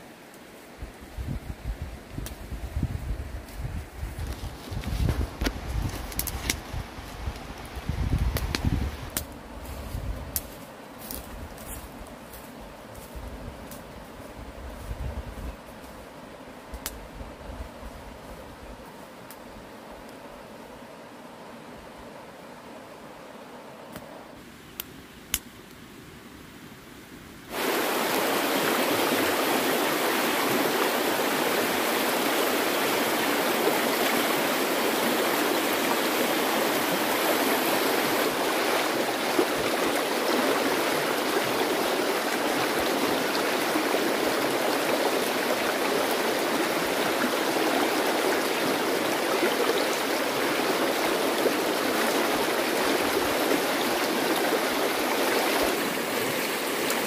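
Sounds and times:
flowing water rushing: 0:27.5 - 0:57.0.

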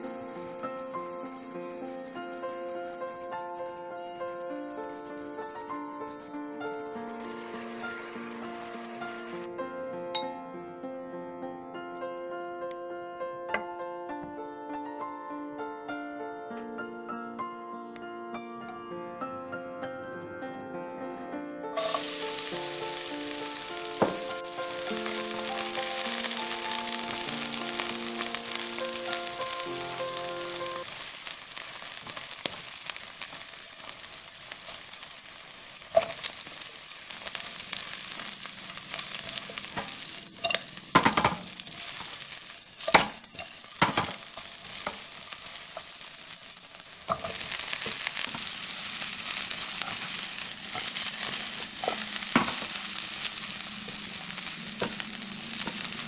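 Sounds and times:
food sizzling in hot oil: 0:00.0 - 0:09.5, 0:21.8 - 0:56.0
background music: 0:00.0 - 0:30.9.

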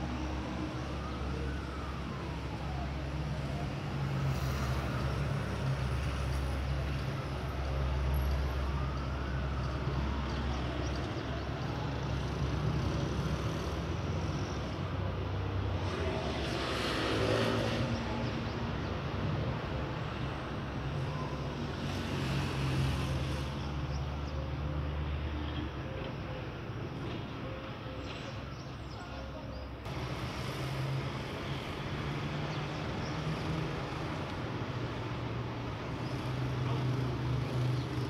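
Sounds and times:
traffic rumble: 0:00.0 - 0:38.0.

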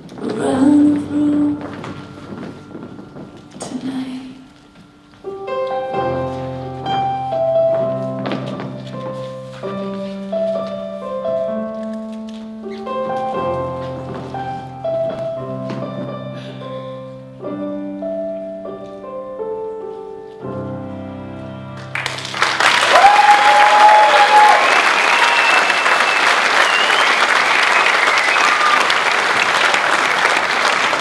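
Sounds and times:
piano chords: 0:00.0 - 0:31.0
audience applause: 0:21.9 - 0:31.0.

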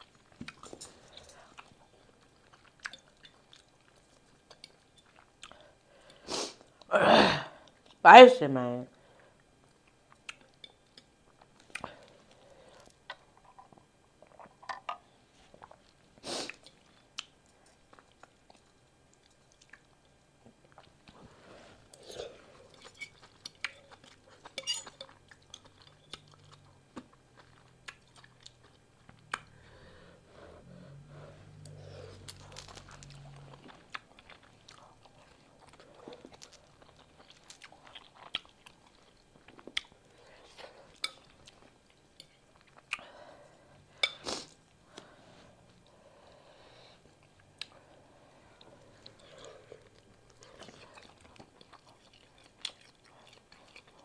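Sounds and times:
person chewing noodles: 0:00.0 - 0:06.9, 0:09.3 - 0:14.8, 0:15.4 - 0:54.0
low hum: 0:25.8 - 0:37.1.

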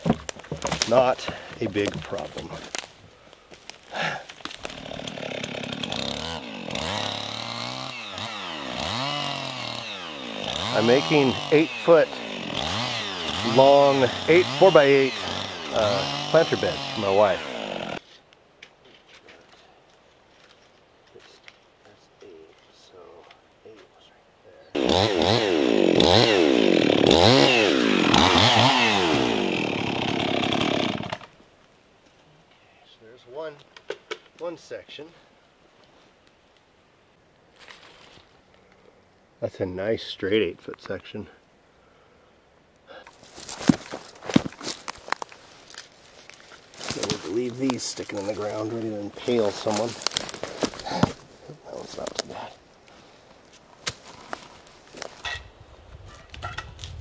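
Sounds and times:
chainsaw cutting log: 0:00.0 - 0:02.8, 0:04.4 - 0:18.0, 0:24.8 - 0:31.3, 0:46.8 - 0:52.4.

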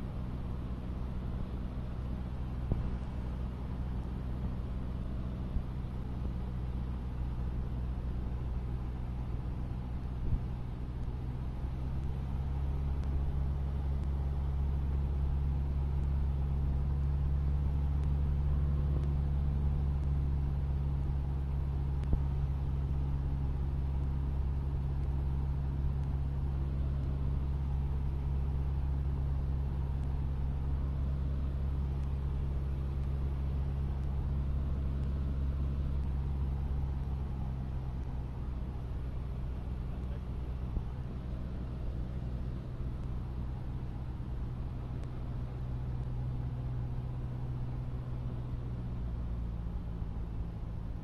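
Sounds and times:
propeller plane engine drone: 0:00.0 - 0:51.0
faint click: 0:22.0 - 0:22.2, 0:45.0 - 0:45.2.

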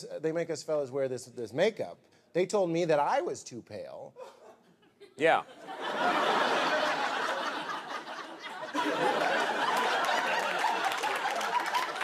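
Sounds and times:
audience laughing: 0:05.5 - 0:12.0.

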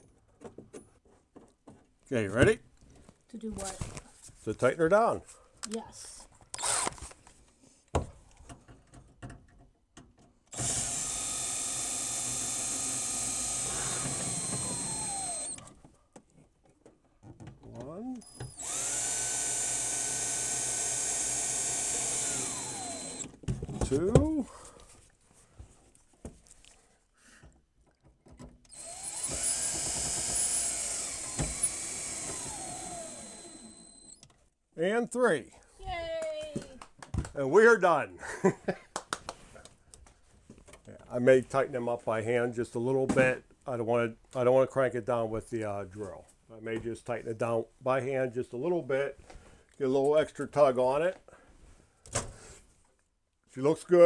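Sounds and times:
cordless drill running: 0:06.6 - 0:07.0, 0:10.5 - 0:15.6, 0:18.3 - 0:23.4, 0:28.7 - 0:34.2.

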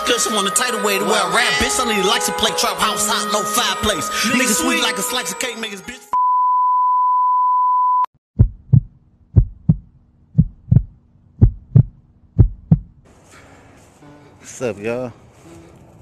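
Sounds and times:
heartbeat thumps: 0:08.4 - 0:13.0.

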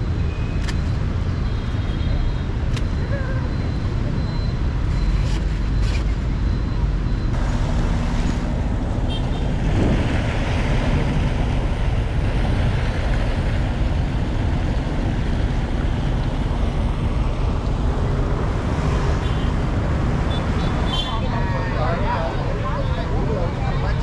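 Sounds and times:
passing cars and scooters: 0:00.0 - 0:24.0.

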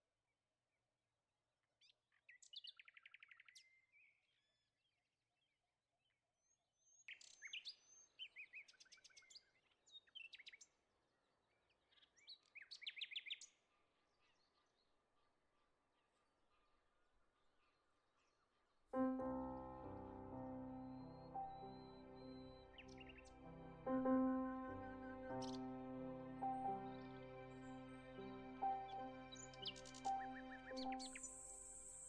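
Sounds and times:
soft music with held notes: 0:19.0 - 0:32.0
songbird chirping: 0:19.0 - 0:32.0.

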